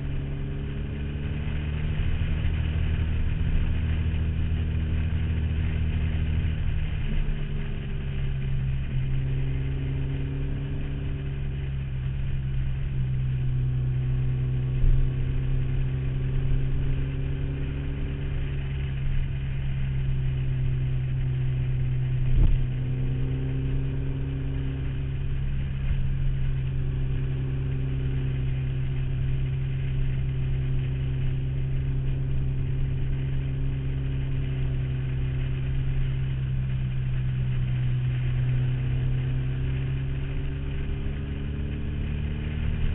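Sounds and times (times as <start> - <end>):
motorcycle engine and exhaust: 0.0 - 42.9.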